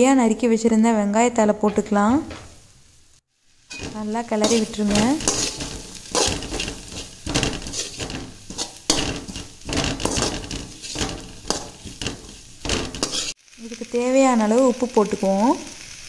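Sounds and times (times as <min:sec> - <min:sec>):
metal spatula scraping pan: 0:01.6 - 0:02.7, 0:03.6 - 0:13.4.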